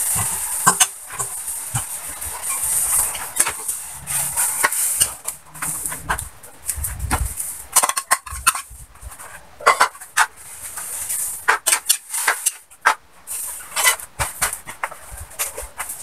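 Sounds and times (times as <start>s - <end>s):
metal spoon scraping a wok: 0.0s - 6.2s.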